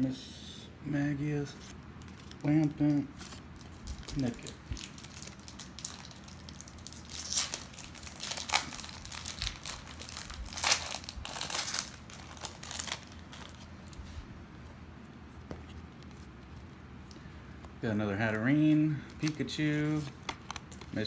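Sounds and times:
plastic wrapper crinkling and tearing: 0:01.6 - 0:14.2, 0:18.3 - 0:21.0.

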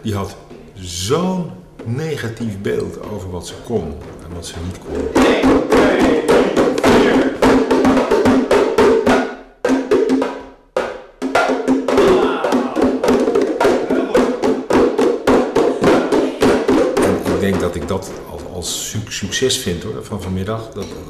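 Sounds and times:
hand drums playing fast rhythm: 0:02.7 - 0:18.9.

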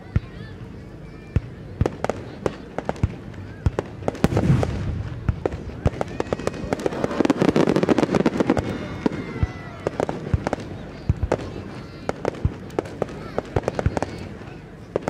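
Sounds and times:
firework crackle: 0:01.4 - 0:15.0
firework sharp bangs: 0:01.4 - 0:15.0
firework deep boom: 0:03.0 - 0:09.3.

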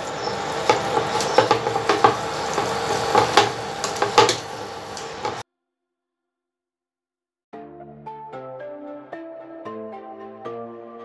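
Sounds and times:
frying sizzle: 0:00.0 - 0:05.4.

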